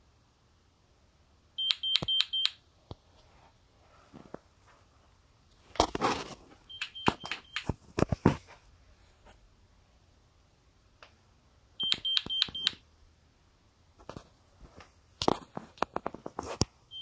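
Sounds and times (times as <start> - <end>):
alarm panel high-pitched beeps: 1.6 - 2.6, 6.7 - 7.7, 11.8 - 12.8.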